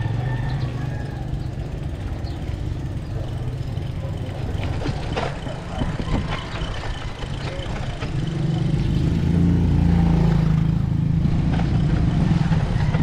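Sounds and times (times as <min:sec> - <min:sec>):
wind and tyre rumble: 0:00.0 - 0:13.0
bike knocks and rattles: 0:02.1 - 0:08.7.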